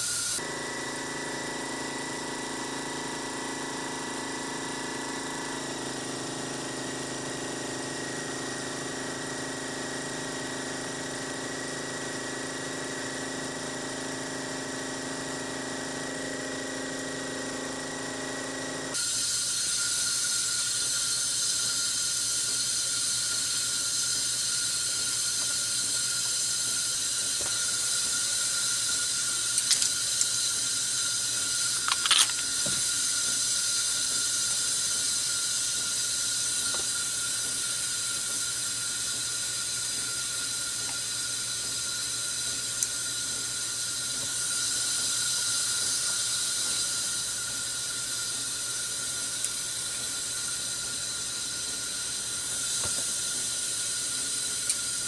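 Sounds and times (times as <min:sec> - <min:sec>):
mechanical hum with tones: 0:00.0 - 0:55.0
steady hiss: 0:19.0 - 0:55.0.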